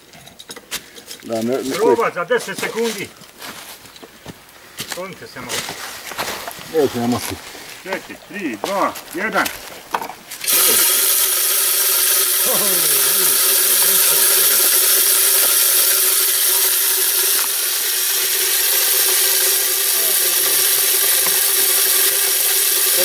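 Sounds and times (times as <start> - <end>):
feeder spinner motor hum: 10.4 - 23.0.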